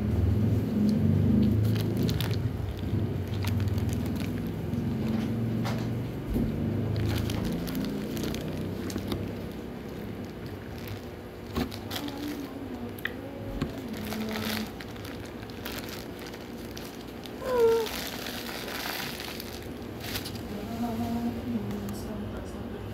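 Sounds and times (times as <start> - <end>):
paper wrapper crinkling: 1.6 - 5.5, 6.8 - 12.9, 13.5 - 21.0.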